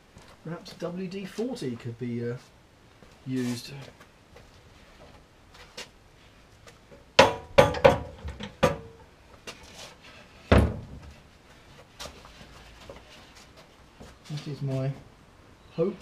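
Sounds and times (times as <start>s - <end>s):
glass knocking on car bodywork: 7.2s - 8.8s
heavy deep thud: 10.5s - 11.1s.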